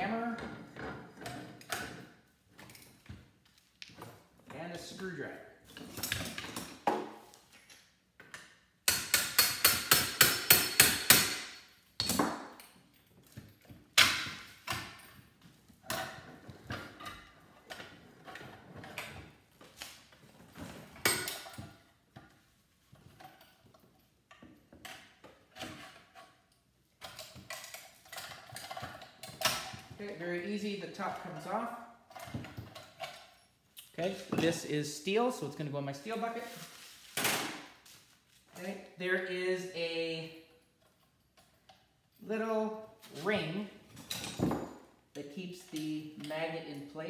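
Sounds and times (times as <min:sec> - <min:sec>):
hammer striking metal: 0:08.9 - 0:12.4.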